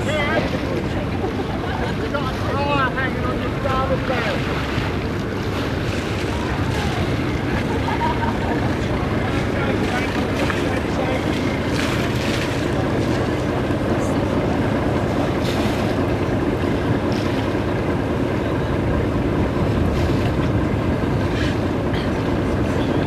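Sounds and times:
water washing past hull: 0.0s - 23.0s.

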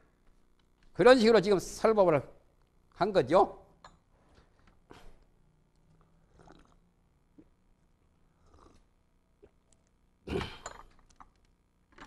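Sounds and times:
drink pouring: 6.3s - 6.8s.

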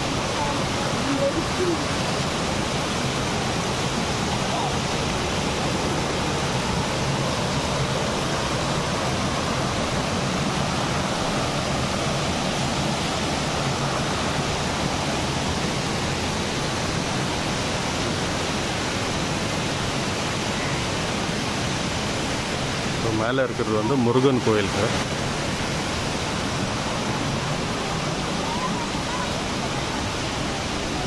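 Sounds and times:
stream water rushing over weir: 0.0s - 31.0s.

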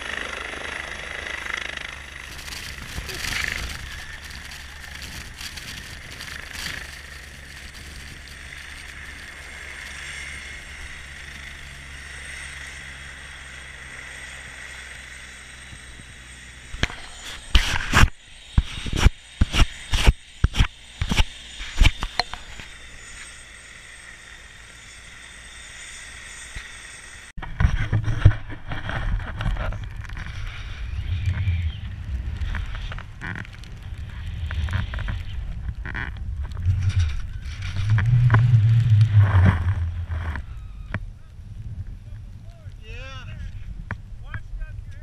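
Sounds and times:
rough rumble riding over snow: 0.0s - 45.0s
wind on camera microphone: 27.4s - 45.0s.

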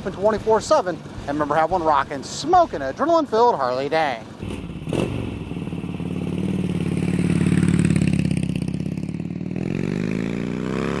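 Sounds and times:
motorcycle engine revving: 4.4s - 11.0s.

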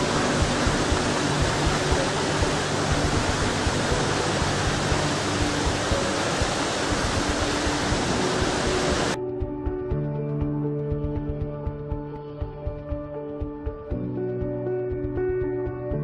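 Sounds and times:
waterfall rushing: 0.0s - 9.2s
faint soft music: 0.0s - 16.0s.

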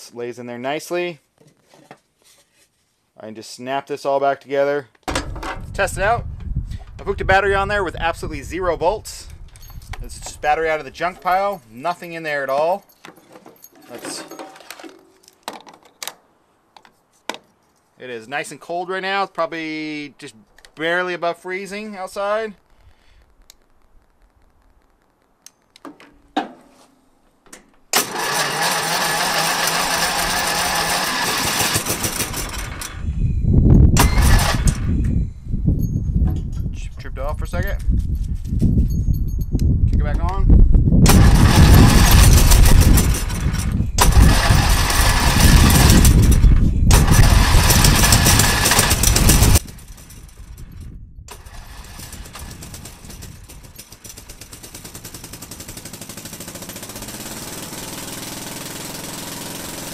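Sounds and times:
electric starter cranking: 27.9s - 33.1s, 34.0s - 35.0s, 41.1s - 49.7s, 51.3s - 59.9s
lawn tractor engine running: 28.0s - 33.1s, 34.0s - 34.8s, 41.1s - 50.1s, 51.3s - 59.9s
starter clicks: 41.1s - 49.7s.

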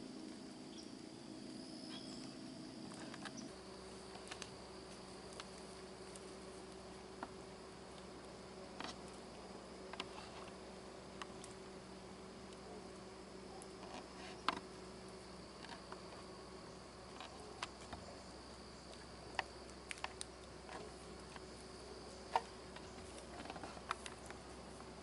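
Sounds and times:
faint high hum: 0.0s - 25.0s
water dripping from trees: 18.4s - 23.2s.

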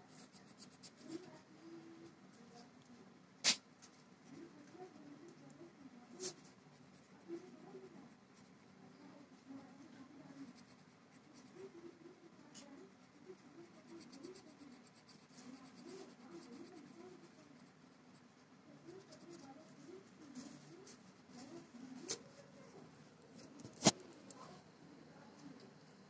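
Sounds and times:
felt-tip pen scratching on paper: 0.0s - 1.5s, 10.2s - 22.4s, 23.3s - 24.4s.

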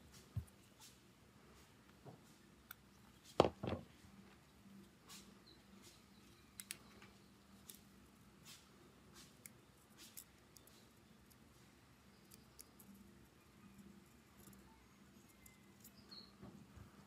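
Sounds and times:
faint steady hum: 0.0s - 17.0s
soft knocks: 3.4s - 3.9s
light clicks of small parts: 4.8s - 13.1s.

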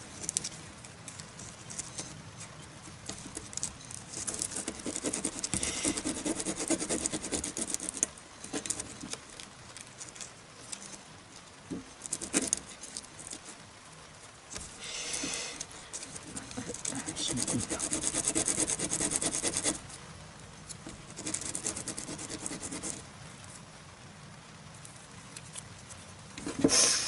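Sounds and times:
wood rubbing on sandpaper: 4.1s - 9.1s, 14.6s - 19.8s, 20.9s - 23.0s.

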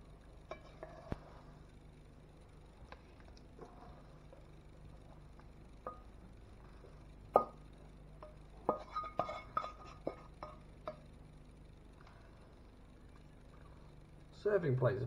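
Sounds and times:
spatula knocking and scraping wok: 0.4s - 1.3s.

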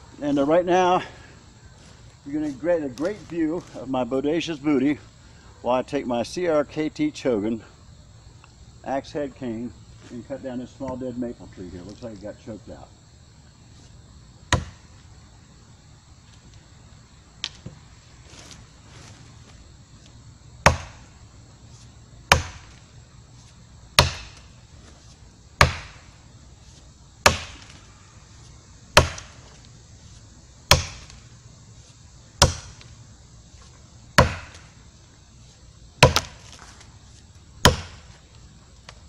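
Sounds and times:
tomahawk chopping into wood: 14.5s - 14.8s, 20.6s - 21.1s, 22.3s - 22.8s, 24.0s - 24.5s, 25.6s - 26.1s, 27.2s - 27.8s, 29.0s - 29.4s, 30.7s - 31.2s, 32.4s - 32.9s, 34.2s - 34.7s, 36.0s - 36.6s, 37.6s - 38.1s.

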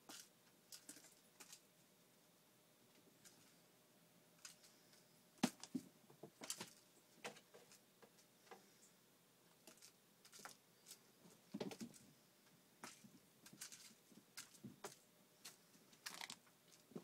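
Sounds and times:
claws scrabbling: 0.0s - 1.7s, 9.5s - 12.1s, 12.8s - 17.0s
cat paws tapping and scuffling: 9.6s - 12.1s, 12.8s - 17.0s.

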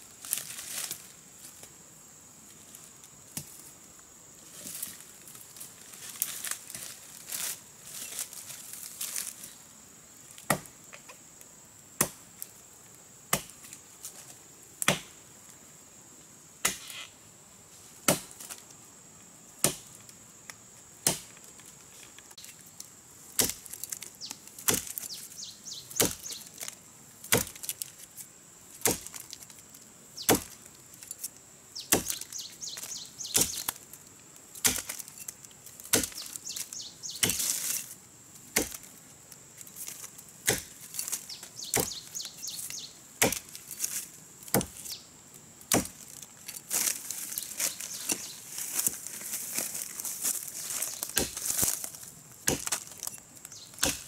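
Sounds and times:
dry leaves crackling underfoot: 0.0s - 1.8s, 4.4s - 9.6s, 21.3s - 54.0s
hand axe chopping tree trunk: 14.8s - 15.1s, 18.1s - 18.3s, 23.4s - 24.0s, 24.6s - 25.0s, 26.0s - 26.3s, 27.3s - 27.7s, 28.8s - 29.2s, 30.2s - 30.6s, 31.9s - 32.2s, 34.6s - 35.1s, 35.9s - 36.4s, 37.2s - 37.6s, 38.5s - 38.8s, 40.4s - 40.8s, 43.2s - 43.5s, 44.5s - 44.8s, 45.7s - 46.0s, 51.1s - 51.7s, 52.4s - 52.9s, 53.8s - 54.0s.

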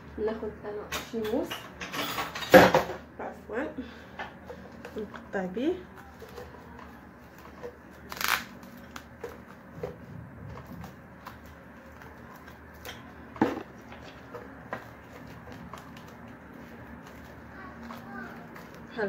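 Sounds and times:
cling film crinkling: 5.9s - 13.3s, 14.0s - 19.0s.

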